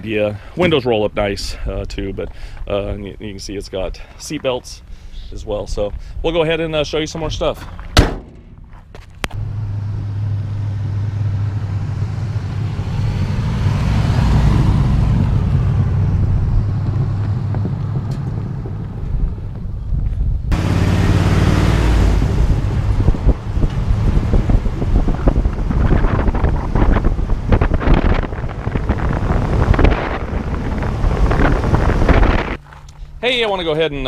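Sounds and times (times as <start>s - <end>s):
tyre and road noise: 0.0s - 34.0s
wind buffeting microphone: 5.4s - 32.6s
truck engine running: 7.7s - 19.8s, 20.5s - 33.2s.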